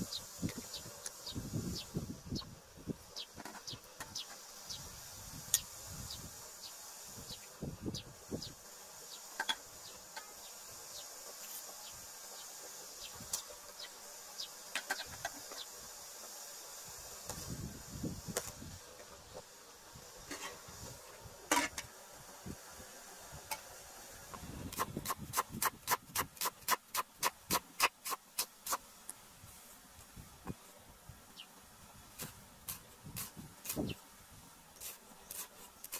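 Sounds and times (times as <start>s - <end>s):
insects buzzing: 0.0s - 35.9s.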